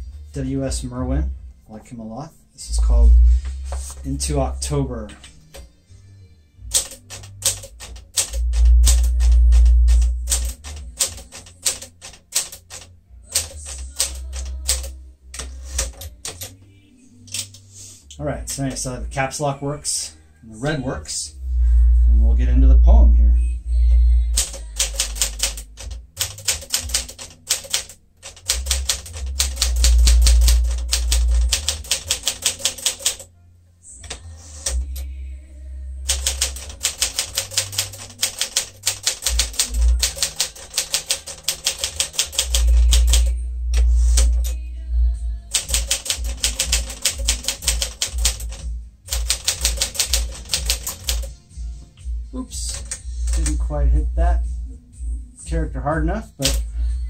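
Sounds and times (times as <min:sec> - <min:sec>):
manual typewriter typing: 0:06.7 - 0:16.6, 0:17.3 - 0:17.6, 0:18.5 - 0:18.9, 0:24.4 - 0:33.3, 0:34.1 - 0:35.1, 0:36.1 - 0:44.6, 0:45.5 - 0:51.3, 0:52.6 - 0:53.6, 0:56.4 - 0:56.7.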